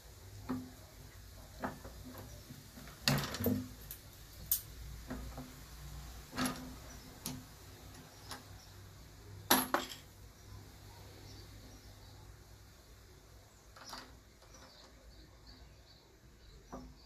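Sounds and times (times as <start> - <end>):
brass cases clinking: 9.5 - 10.1.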